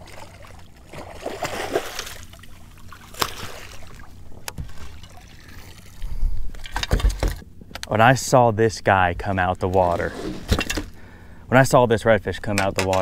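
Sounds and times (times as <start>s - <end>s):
water splashing beside a boat: 0.0s - 7.3s.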